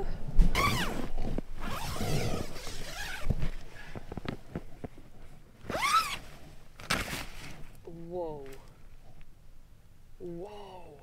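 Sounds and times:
tent zipper pulled open: 0.5s - 3.5s, 5.6s - 7.6s
tent fabric rustling: 0.5s - 7.8s.

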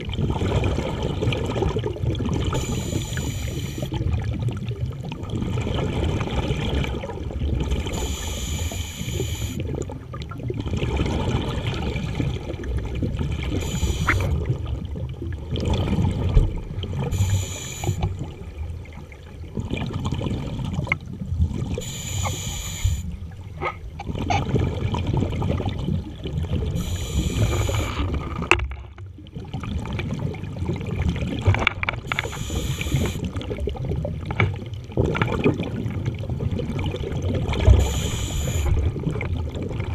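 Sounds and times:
gurgle of exhaled bubbles: 0.0s - 39.9s
hissing regulator inhale: 2.5s - 4.0s, 7.9s - 9.6s, 13.6s - 14.3s, 17.1s - 18.1s, 21.8s - 23.1s, 26.8s - 28.0s, 32.1s - 33.3s, 37.8s - 38.8s.

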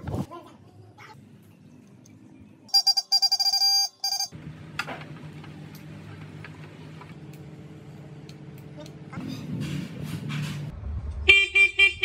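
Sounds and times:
shrill electronic horn beeps: 2.7s - 4.4s.

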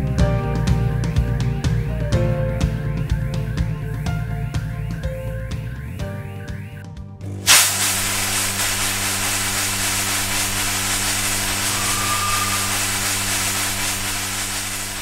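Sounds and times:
loud rushing hiss: 7.5s - 15.0s
low steady hum: 7.5s - 15.0s
faint high tone: 11.4s - 14.4s.

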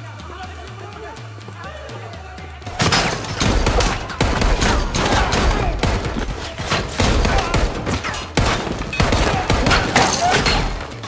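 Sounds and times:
rapid handgun fire: 2.7s - 11.0s.

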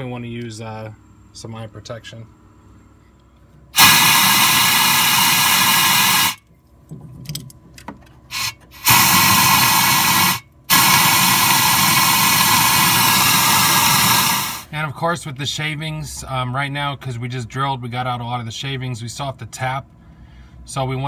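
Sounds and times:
compressed air blow gun hissing: 3.8s - 6.4s, 8.3s - 14.7s.

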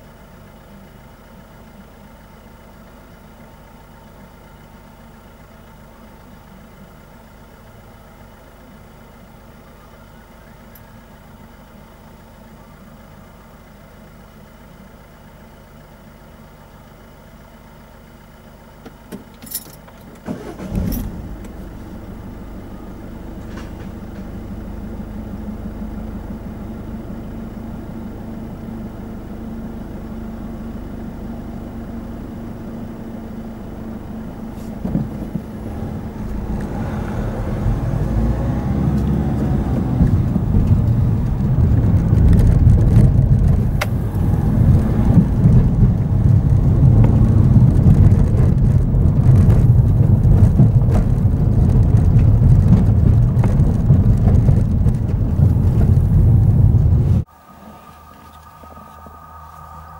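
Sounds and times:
car engine idling: 0.0s - 59.9s
car driving on rough road: 17.4s - 59.9s.

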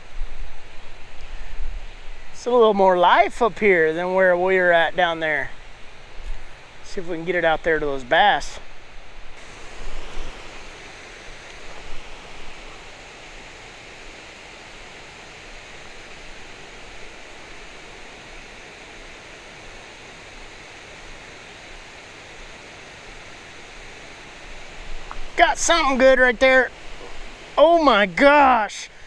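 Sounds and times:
flowing river water: 0.0s - 29.0s.

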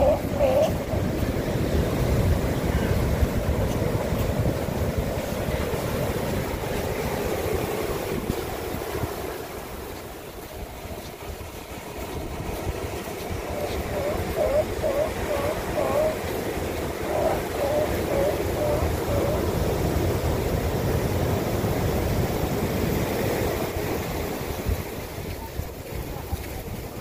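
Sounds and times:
surf breaking over rocks: 0.0s - 27.0s
wind buffeting microphone: 0.0s - 27.0s.

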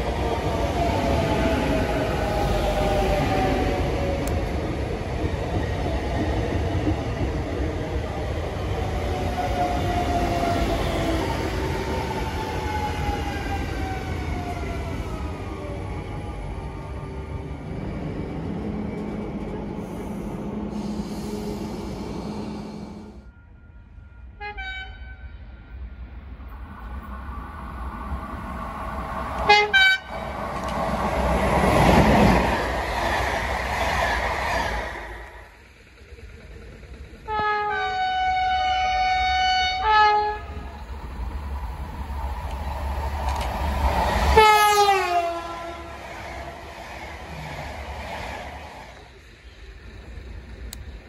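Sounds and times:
rumble of passing train: 0.0s - 51.0s
train horn blasts: 23.8s - 25.7s, 29.4s - 30.2s, 37.3s - 40.7s, 44.4s - 46.1s.

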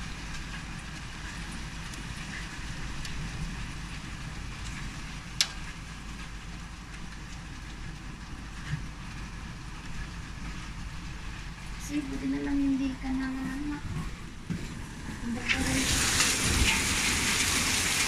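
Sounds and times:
clicks of hailstones: 0.0s - 9.0s, 15.5s - 18.0s
rain and hail on wooden deck: 0.0s - 18.0s.

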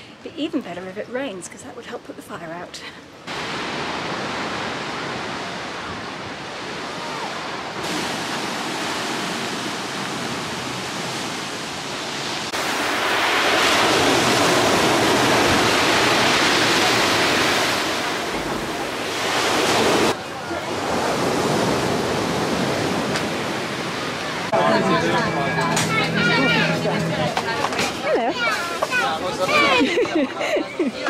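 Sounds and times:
waves breaking on pebble beach: 3.3s - 24.5s.

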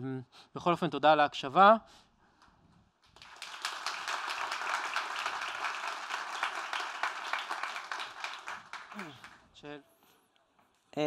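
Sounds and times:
audience applauding: 3.1s - 9.5s.

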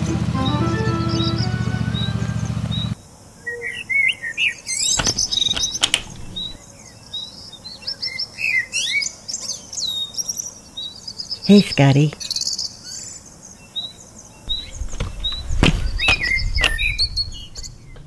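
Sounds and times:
songbirds chirping: 0.0s - 18.0s
sharp knocks: 5.0s - 6.6s, 14.5s - 18.0s.

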